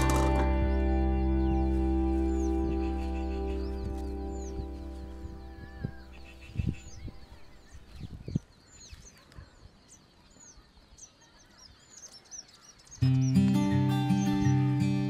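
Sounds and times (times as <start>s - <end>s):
guitar music: 0.0s - 7.0s, 13.0s - 15.0s
small birds chirping: 0.0s - 15.0s.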